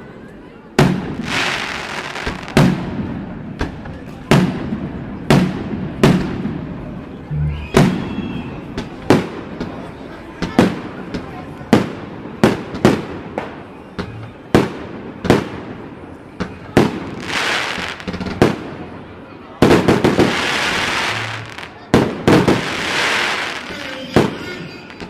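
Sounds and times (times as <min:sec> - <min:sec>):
fireworks crackling and hissing: 0:00.8 - 0:07.1, 0:07.8 - 0:25.0
fireworks bangs: 0:00.8 - 0:25.0.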